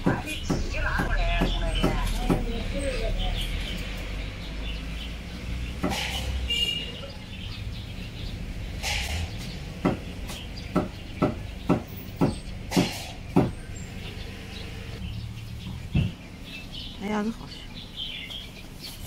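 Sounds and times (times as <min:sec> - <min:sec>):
cleaver chopping on wooden block: 0:09.8 - 0:13.6.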